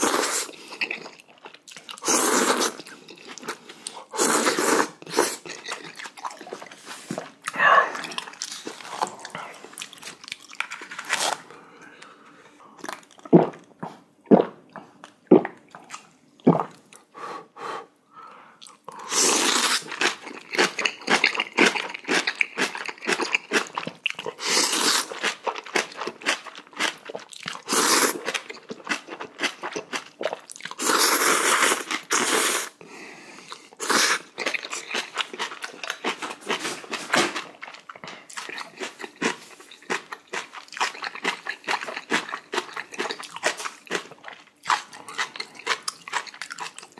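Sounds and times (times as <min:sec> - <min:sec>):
person chewing and crunching: 0:00.0 - 0:14.0, 0:18.6 - 0:32.7, 0:33.5 - 0:46.9
noodle slurps: 0:02.0 - 0:02.9, 0:04.1 - 0:07.3, 0:30.2 - 0:32.8.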